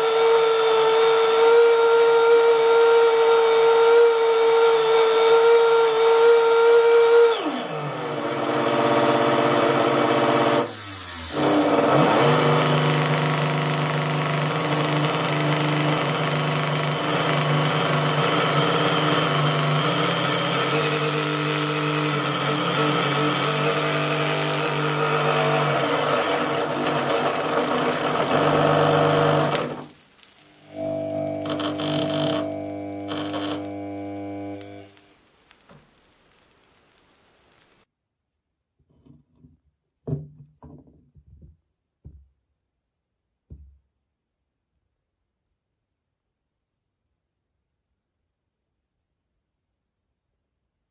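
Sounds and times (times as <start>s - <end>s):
electric motor high whine: 0.0s - 29.9s, 30.6s - 35.1s
hiss of arcing brushes: 9.8s - 13.6s, 17.9s - 37.9s.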